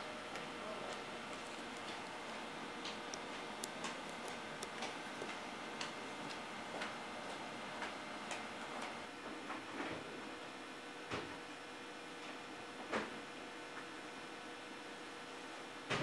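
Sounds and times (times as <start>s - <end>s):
sharp ticking clicks: 1.6s - 6.4s.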